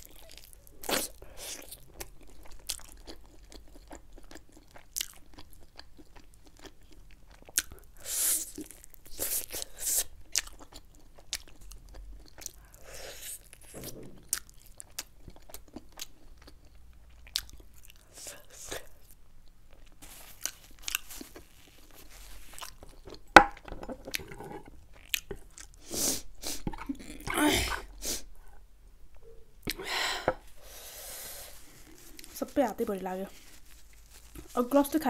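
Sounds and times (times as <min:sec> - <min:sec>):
chewing crunches: 0:00.0 - 0:18.2, 0:19.7 - 0:25.8, 0:33.3 - 0:34.6.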